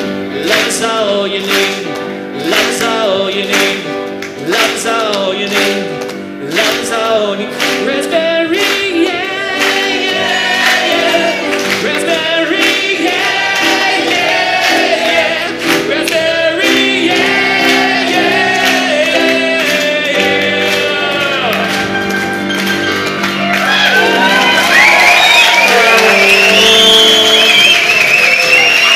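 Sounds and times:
man singing: 0.0s - 22.0s, 25.6s - 28.0s
grand piano playing: 0.0s - 28.9s
voices singing along: 6.4s - 21.8s, 23.8s - 28.9s.

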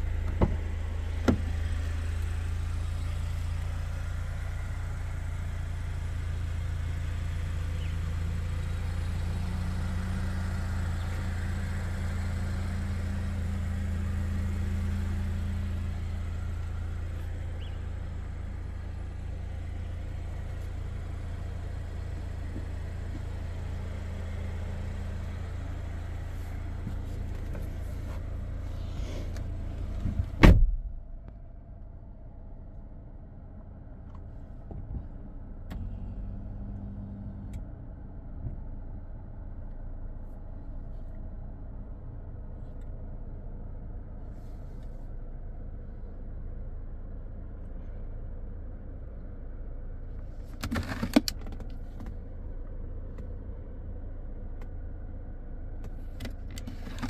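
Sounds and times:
car engine idling hum: 0.0s - 57.0s
loud thump: 30.1s - 30.9s.

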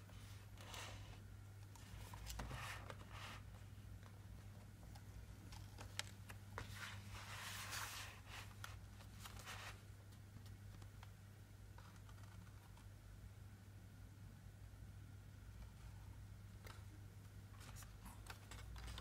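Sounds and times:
sliding paper rustle: 5.5s - 9.8s
card pages rustling and clicking: 17.6s - 19.0s.

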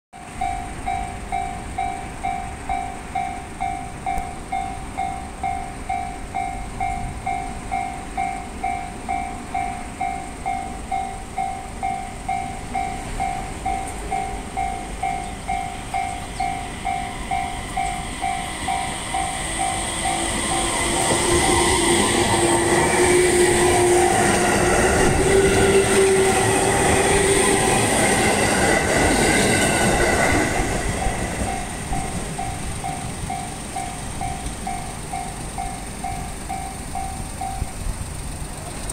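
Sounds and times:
electric train passing: 0.2s - 38.9s
level crossing bell ringing: 0.3s - 22.9s, 31.4s - 37.8s
rising motor whine: 16.0s - 31.6s.

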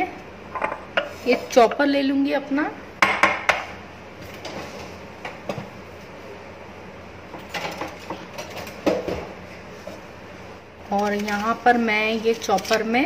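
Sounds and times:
kitchenware clicking and knocking: 3.0s - 3.7s.

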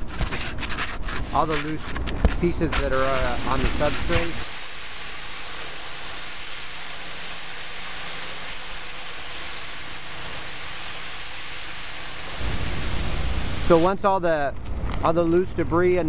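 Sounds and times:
pressure washer spraying water: 1.2s - 14.0s.

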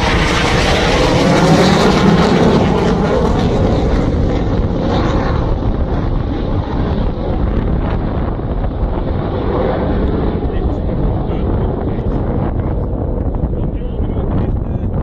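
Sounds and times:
jet flying past: 0.0s - 15.0s.

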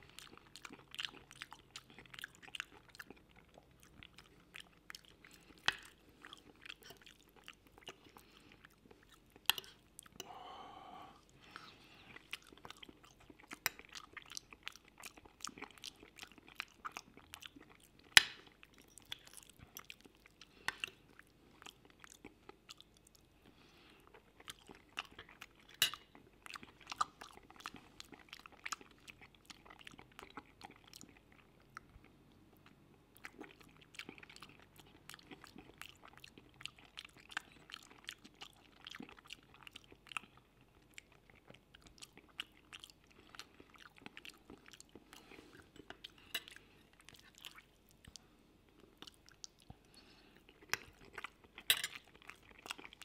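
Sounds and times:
knife and fork on plate: 51.7s - 52.0s.

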